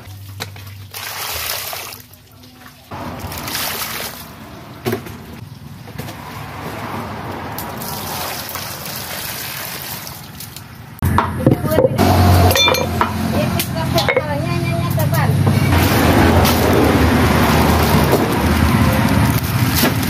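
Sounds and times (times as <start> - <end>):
water pouring into plastic basin: 0.1 - 4.6, 7.6 - 10.7.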